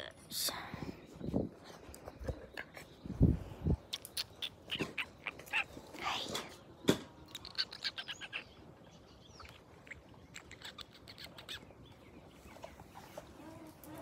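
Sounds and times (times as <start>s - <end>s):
puppies squeaking and whimpering: 3.9s - 6.0s, 7.3s - 8.5s, 9.4s - 11.7s.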